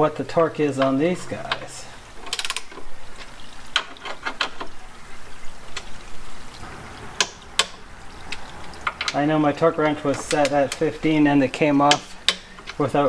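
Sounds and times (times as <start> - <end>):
socket wrench clicking: 11.9 - 12.8.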